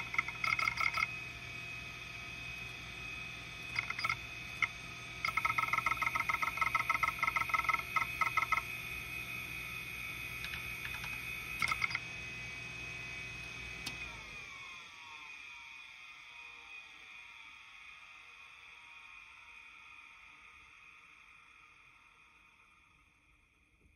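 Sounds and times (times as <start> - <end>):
hard drive seek clicks: 0.0 - 1.2, 3.6 - 9.3, 10.2 - 12.1
drive spinning down: 0.0 - 15.2
hard drive platters whining: 0.0 - 16.8.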